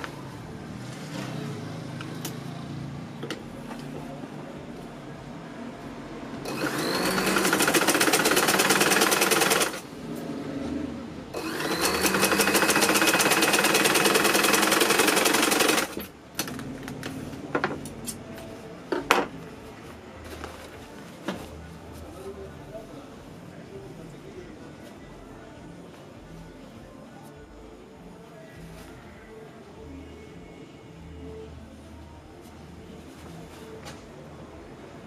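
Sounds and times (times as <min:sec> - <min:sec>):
sewing machine stitching: 0:06.4 - 0:09.9, 0:11.4 - 0:16.6.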